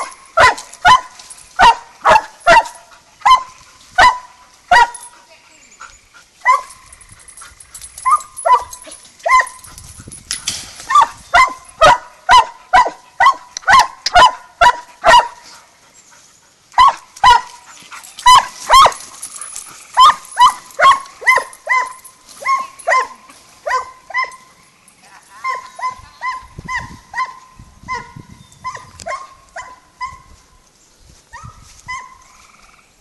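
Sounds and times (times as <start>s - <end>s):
dog barking: 0.0s - 5.1s, 6.4s - 6.8s, 8.0s - 9.7s, 10.9s - 15.4s, 16.8s - 17.6s, 18.2s - 19.0s, 20.0s - 24.4s, 25.4s - 30.3s.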